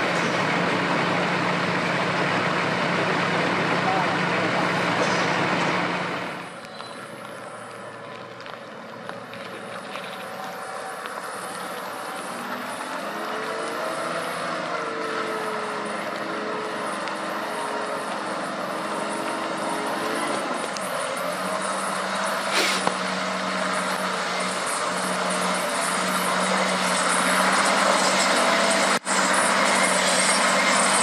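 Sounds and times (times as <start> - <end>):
off-road vehicle engine revving: 0.0 - 7.8, 8.8 - 31.0.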